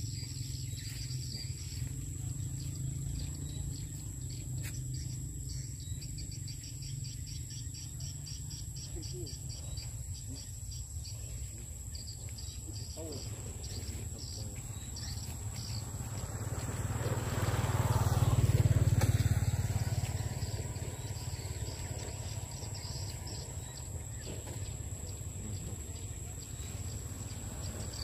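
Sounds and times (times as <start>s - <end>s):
insects trilling: 0.0s - 28.0s.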